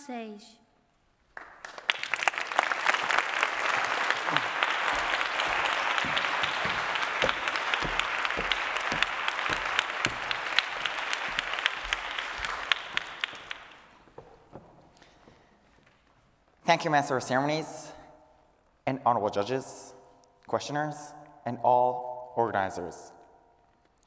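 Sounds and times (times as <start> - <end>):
audience applauding: 1.3 - 15.1.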